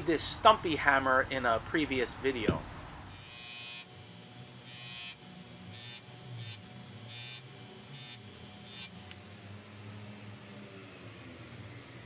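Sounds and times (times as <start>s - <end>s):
bench grinder motor humming: 3.1s - 12.0s
metal hissing against buffing wheel: 3.1s - 12.0s.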